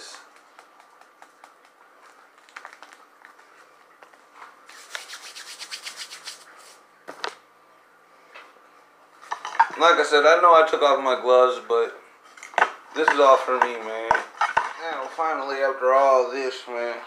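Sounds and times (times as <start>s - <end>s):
hands rubbing together: 4.6s - 6.9s.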